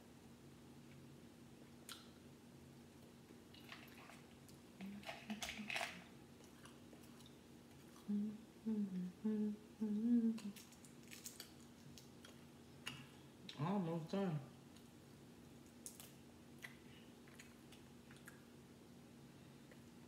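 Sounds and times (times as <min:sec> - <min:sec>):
woman humming: 0:08.0 - 0:10.6.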